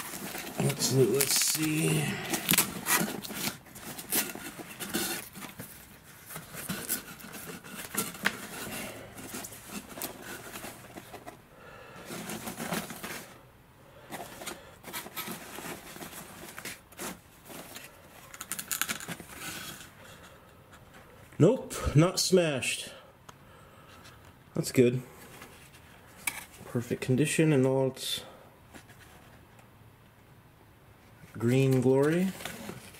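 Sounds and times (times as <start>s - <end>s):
tape being peeled off: 0.0s - 8.4s
foil material rustling and scraping: 0.0s - 11.2s.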